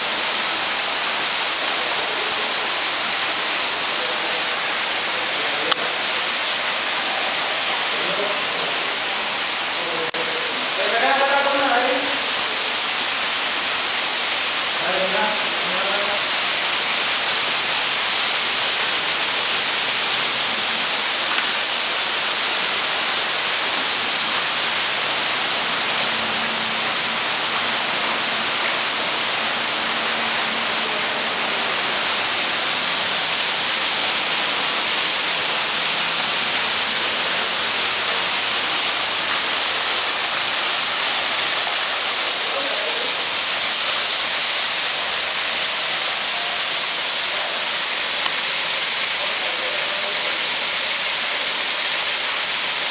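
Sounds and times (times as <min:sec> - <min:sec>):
steady hiss: 0:00.0 - 0:52.9.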